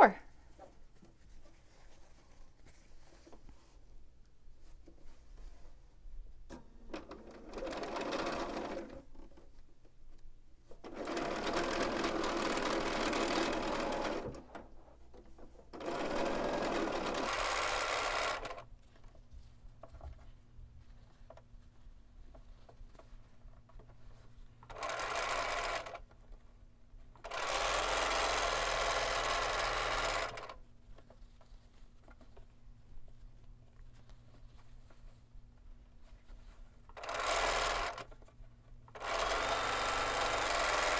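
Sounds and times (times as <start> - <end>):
sewing machine stitching: 6.8 - 9.1, 10.8 - 14.7, 15.7 - 18.7, 24.6 - 26.3, 27.2 - 30.6, 36.9 - 38.3, 38.9 - 40.9.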